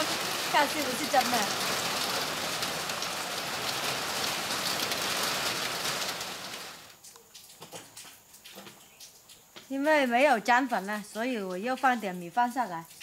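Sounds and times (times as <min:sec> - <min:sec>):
heavy rain falling: 0:00.0 - 0:08.1.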